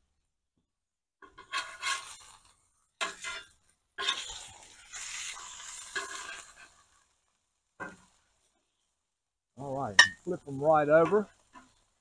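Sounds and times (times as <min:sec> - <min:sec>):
metal spatula scraping griddle: 0:01.2 - 0:07.1, 0:10.1 - 0:11.9
hissing sizzle: 0:01.2 - 0:12.0.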